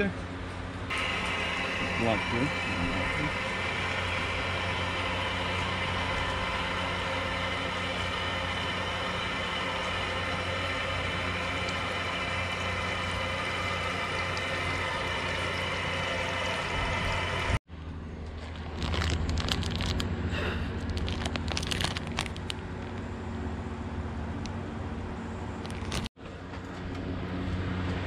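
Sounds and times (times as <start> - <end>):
low hum: 0.0 - 28.0
water rushing from a hose: 0.9 - 17.6.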